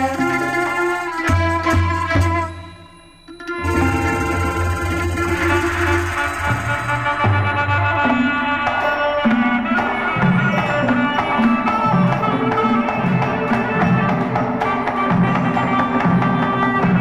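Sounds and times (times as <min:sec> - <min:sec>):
traditional dance music melody: 0:00.0 - 0:17.0
steady drum beat: 0:03.6 - 0:08.1.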